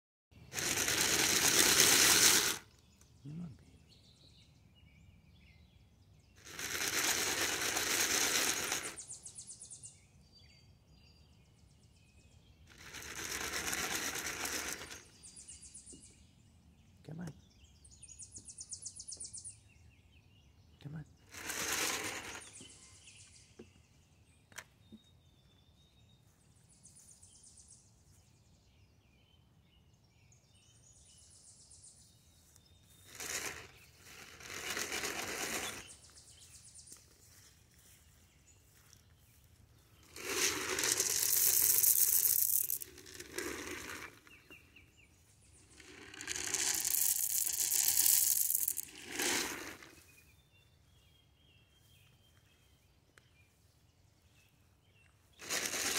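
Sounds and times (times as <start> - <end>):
corn kernels rattling in container: 0.5 - 2.7, 6.4 - 9.2, 12.7 - 15.3, 21.3 - 22.8, 33.0 - 36.0, 40.0 - 44.6, 45.6 - 50.0, 55.4 - 55.9.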